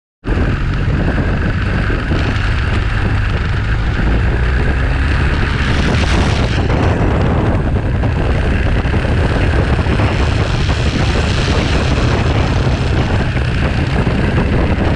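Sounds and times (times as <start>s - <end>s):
motorcycle engine: 0.2s - 14.9s
wind rumbling on microphone: 0.2s - 14.9s.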